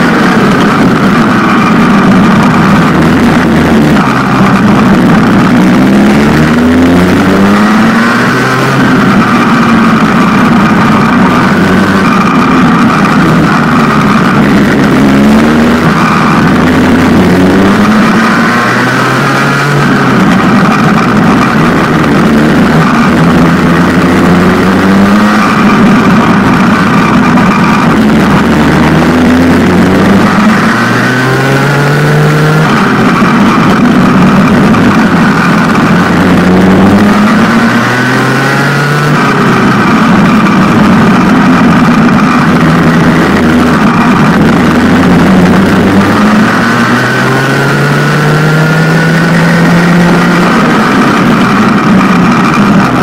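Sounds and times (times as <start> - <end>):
racing kart engine revving: 0.0 - 53.0.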